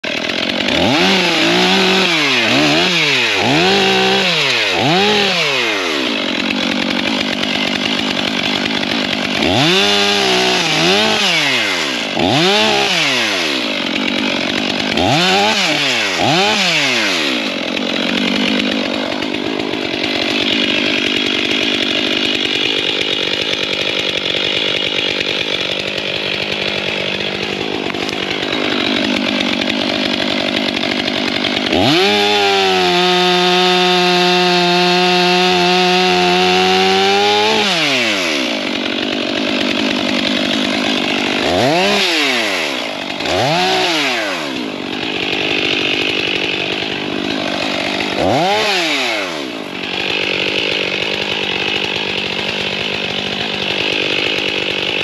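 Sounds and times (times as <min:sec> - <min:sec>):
chainsaw cutting log: 0:00.0 - 0:55.0
chainsaw revving: 0:00.0 - 0:55.0.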